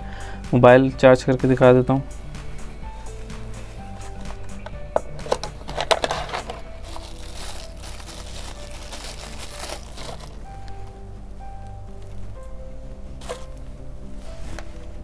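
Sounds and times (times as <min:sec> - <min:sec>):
background music: 0:00.0 - 0:15.0
plastic bag crinkling: 0:05.2 - 0:10.5, 0:13.2 - 0:13.6.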